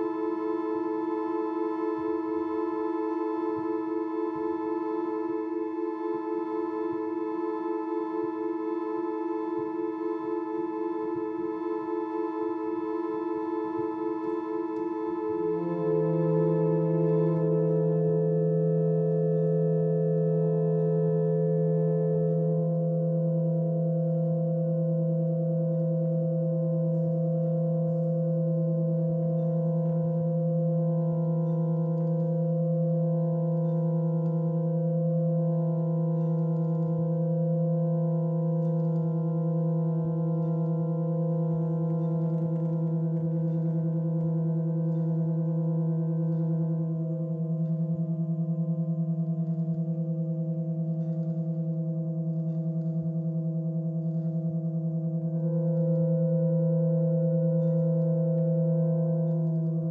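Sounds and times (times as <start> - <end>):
pump organ drone chord: 0.0 - 22.6.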